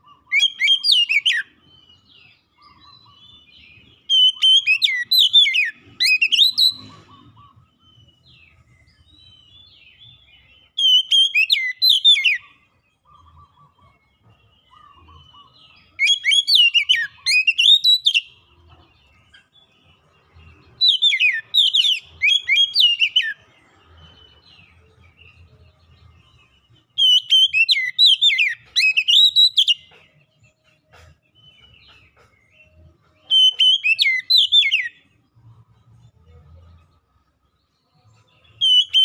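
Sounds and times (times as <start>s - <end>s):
bird singing whistled phrases: 0.0s - 7.6s, 10.8s - 13.8s, 14.6s - 18.4s, 20.8s - 23.4s, 27.0s - 29.9s, 33.3s - 35.1s, 38.4s - 39.0s.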